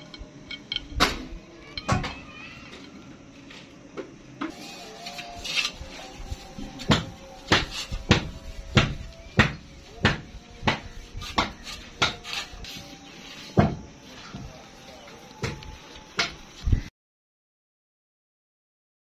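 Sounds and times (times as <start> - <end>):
clay bowls clicking: 0.0 - 1.0.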